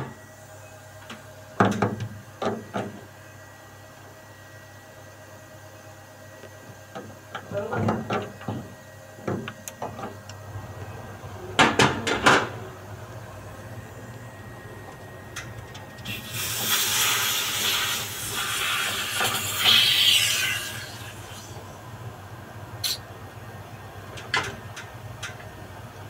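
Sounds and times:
refrigerant gas hissing: 14.5s - 23.2s.

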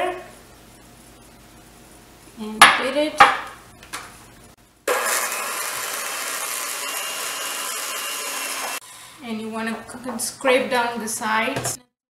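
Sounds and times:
electric hand mixer running: 4.9s - 8.8s.

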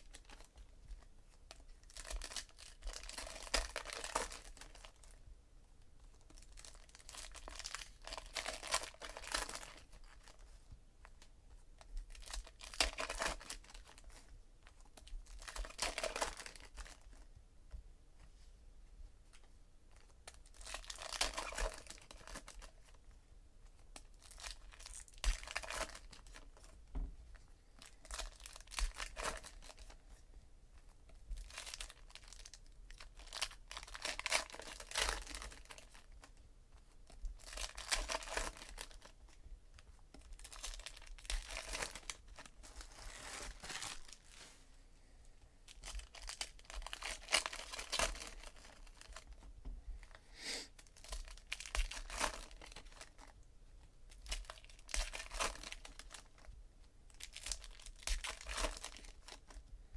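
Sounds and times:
foil wrappers torn and crinkled: 1.5s - 5.2s, 6.4s - 10.4s, 12.1s - 14.2s, 15.0s - 17.2s, 20.0s - 23.0s, 24.0s - 26.7s, 27.8s - 30.0s, 31.4s - 36.4s, 37.4s - 39.1s, 40.2s - 44.4s, 45.7s - 49.4s, 50.8s - 53.3s, 54.1s - 56.5s, 57.1s - 59.6s
hands handling card packs: 39.8s - 44.6s, 45.7s - 49.4s, 57.2s - 59.6s.

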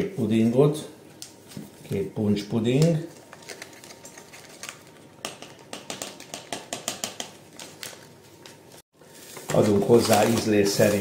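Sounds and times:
paper sachets rustling and crinkling: 3.1s - 5.0s, 7.4s - 11.0s.

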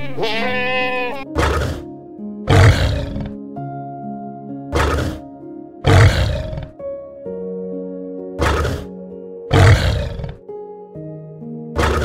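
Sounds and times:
calm background music: 0.0s - 12.0s
large animal calling: 2.5s - 3.4s, 5.8s - 6.8s, 9.5s - 10.4s, 11.8s - 12.0s.

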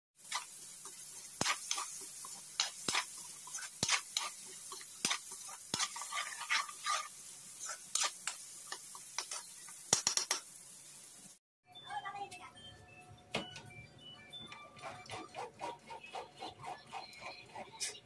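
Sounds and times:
spatula scraping pan: 0.2s - 9.6s, 14.8s - 18.0s
vegetables sizzling in oil: 0.2s - 11.4s.

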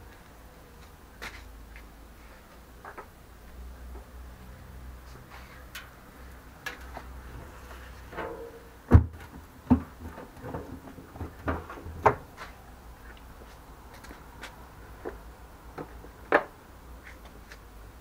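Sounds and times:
knocks and clunks on metal drum: 8.1s - 12.3s.

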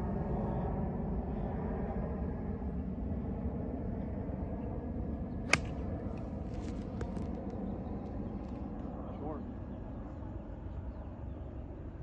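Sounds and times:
golf club striking ball: 5.5s - 5.9s.

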